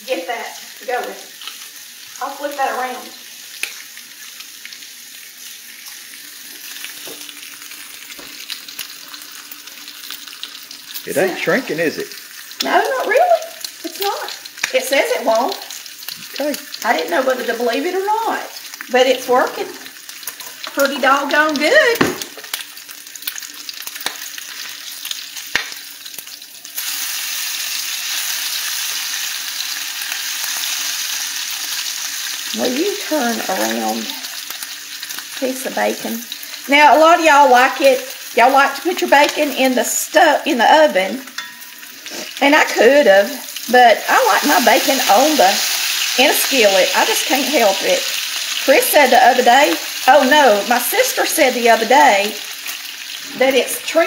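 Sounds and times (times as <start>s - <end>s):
bacon sizzling in skillet: 0.0s - 54.0s
crackles and pops of fat: 22.0s - 24.4s, 25.4s - 25.8s.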